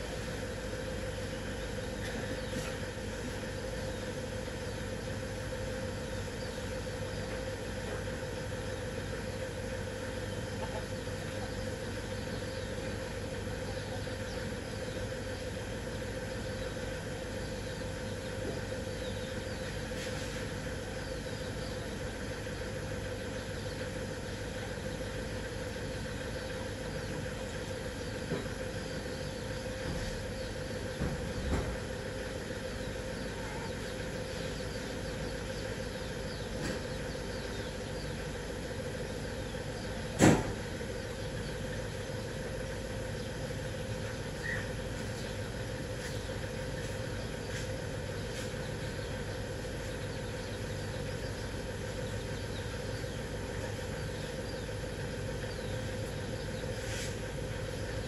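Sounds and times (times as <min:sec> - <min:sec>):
steady motor hum: 0:00.0 - 0:58.0
sharp knock: 0:40.2 - 0:40.6.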